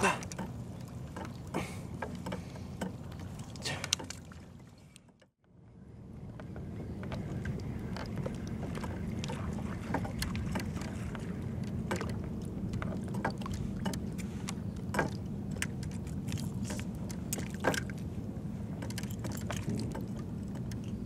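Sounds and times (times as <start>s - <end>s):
water lapping at hull: 0.0s - 21.0s
wind rumble on microphone: 5.5s - 21.0s.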